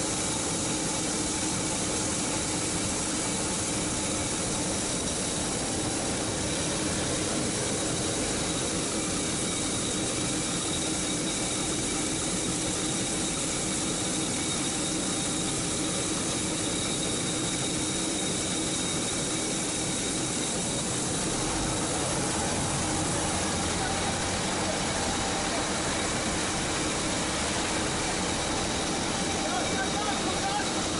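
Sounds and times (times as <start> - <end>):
machinery hiss: 0.0 - 30.9
low engine running: 20.2 - 30.9.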